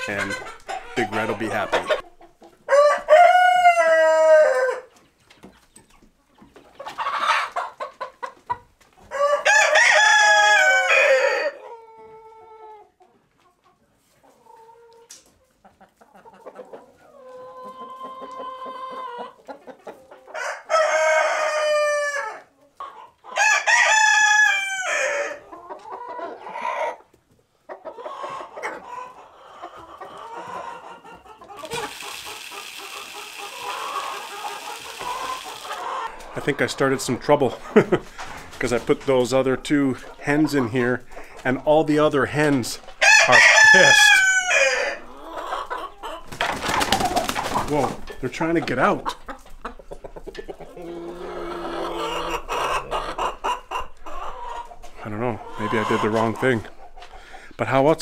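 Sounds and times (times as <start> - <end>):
hens clucking: 0.0 - 58.0
roosters crowing: 2.6 - 4.9, 9.1 - 11.8, 20.4 - 22.5, 23.3 - 25.5, 29.8 - 36.4, 43.0 - 46.3
feed poured from metal scoop: 31.6 - 35.6.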